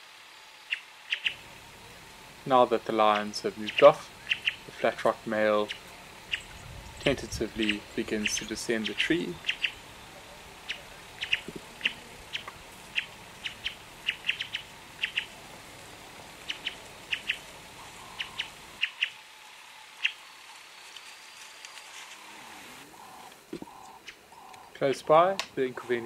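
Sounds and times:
soft outdoor background: 0.0 - 26.0
small animal chirping: 0.7 - 1.4, 3.1 - 4.7, 5.6 - 6.8, 7.5 - 15.4, 16.4 - 19.2.

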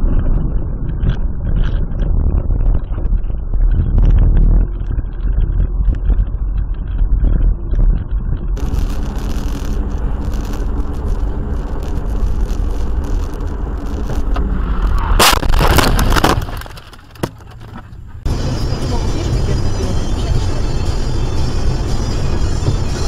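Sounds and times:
car road and engine noise: 0.0 - 23.0
car collision: 14.4 - 18.2.

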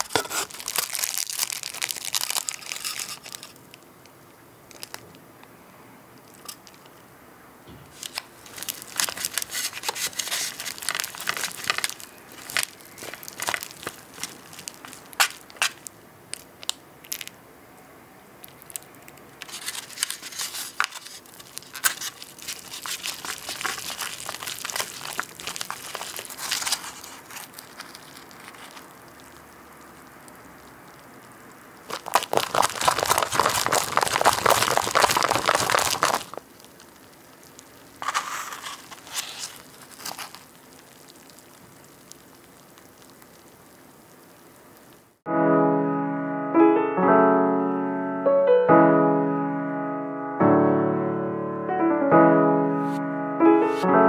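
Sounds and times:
chopsticks stirring sticky food: 19.4 - 28.9, 31.9 - 36.4.

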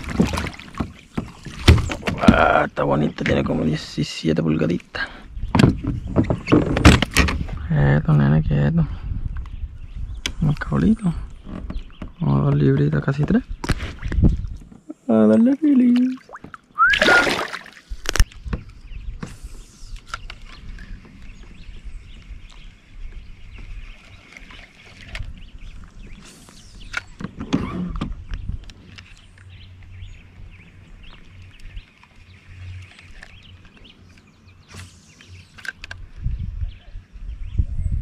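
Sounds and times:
water splashing against kayak: 0.0 - 2.5, 15.8 - 18.3.

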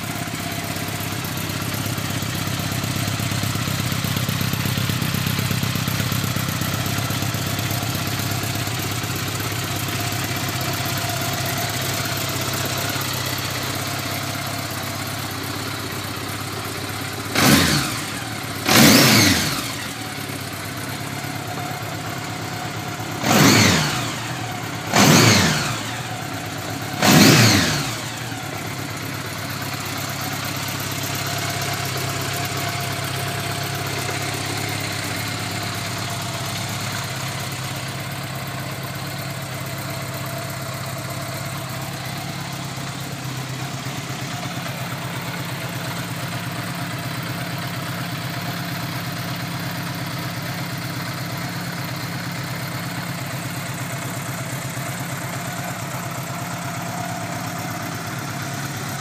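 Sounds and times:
motorcycle engine idling: 0.0 - 59.0
engine revving in throttle blips: 17.3 - 20.0, 23.2 - 26.2, 26.9 - 28.4.

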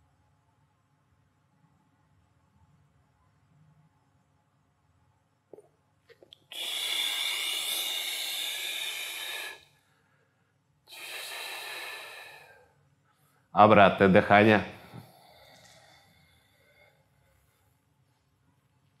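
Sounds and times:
man breathing deeply: 6.5 - 12.8, 14.8 - 17.8.

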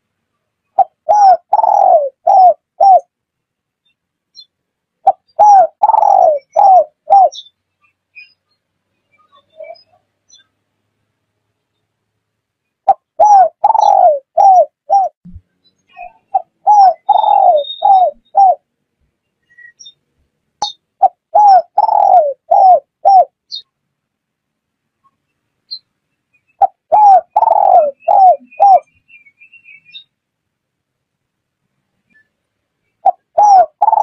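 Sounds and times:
dove cooing: 0.8 - 3.1, 5.0 - 7.4, 12.9 - 15.2, 16.0 - 18.6, 21.0 - 23.4, 26.6 - 28.9, 33.0 - 34.0.

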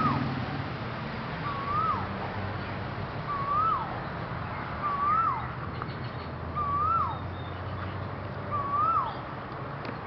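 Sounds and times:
bird whistling call: 1.4 - 2.1, 3.3 - 7.7, 8.5 - 9.2.

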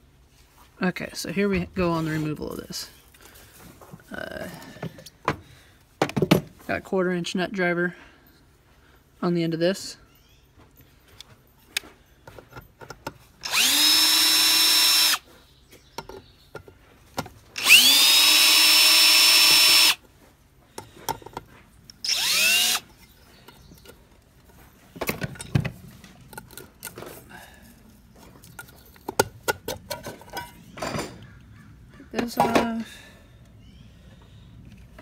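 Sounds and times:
cordless drill whining: 13.4 - 15.3, 17.6 - 20.0, 22.0 - 23.0.

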